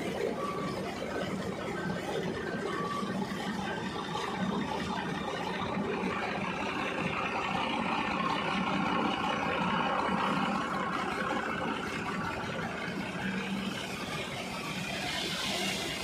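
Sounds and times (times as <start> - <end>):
water gushing and splashing: 4.0 - 16.0.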